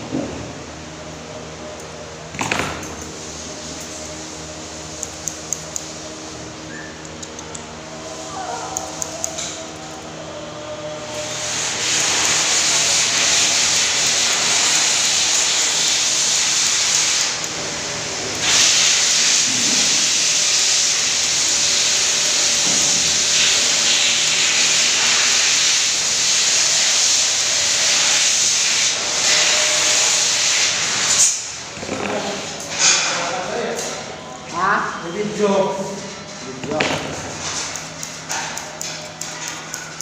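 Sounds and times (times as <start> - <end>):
blow dryer rushing air: 7.7 - 33.6.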